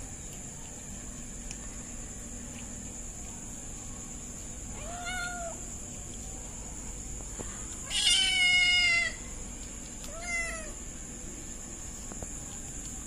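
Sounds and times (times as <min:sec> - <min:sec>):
kitten meowing: 0:04.8 - 0:05.6, 0:07.8 - 0:09.2, 0:10.0 - 0:10.8.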